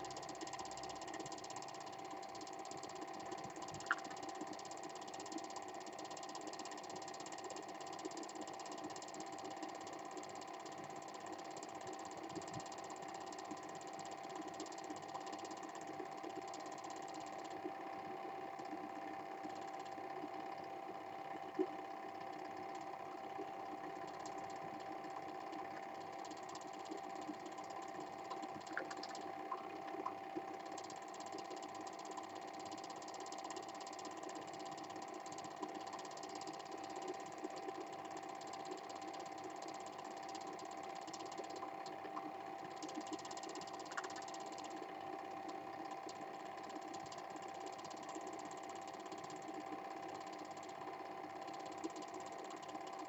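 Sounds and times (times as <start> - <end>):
film projector whirring: 0.0 - 53.0.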